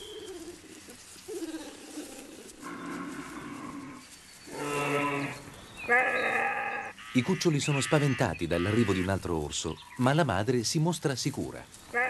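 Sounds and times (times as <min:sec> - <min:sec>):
bear cubs crying: 0:00.0 - 0:09.2.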